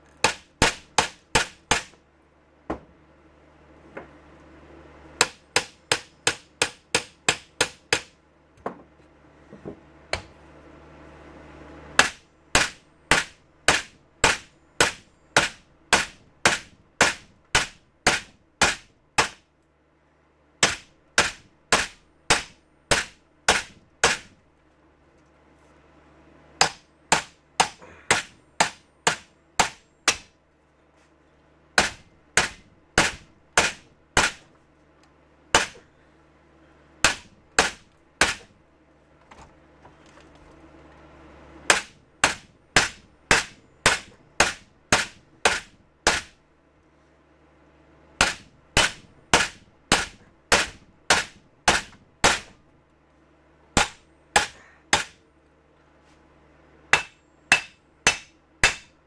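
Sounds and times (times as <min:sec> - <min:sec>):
tire iron striking metal: 0:00.2 - 0:02.0, 0:05.2 - 0:08.2, 0:12.0 - 0:19.5, 0:20.6 - 0:24.4, 0:26.6 - 0:30.4, 0:31.8 - 0:34.5, 0:35.5 - 0:35.9, 0:37.0 - 0:38.6, 0:41.7 - 0:46.4, 0:48.2 - 0:52.6, 0:53.8 - 0:55.2, 0:56.9 - 0:59.0.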